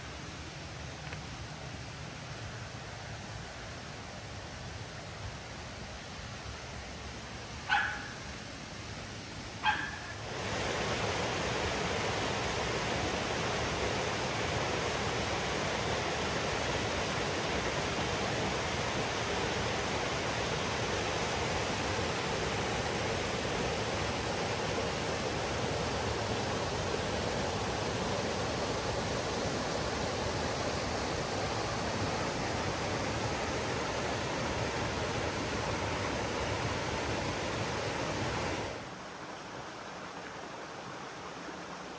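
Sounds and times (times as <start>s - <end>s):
dog barks: 7.7s - 8.2s, 9.6s - 10.2s
waterfall rushing over rock: 9.4s - 41.9s.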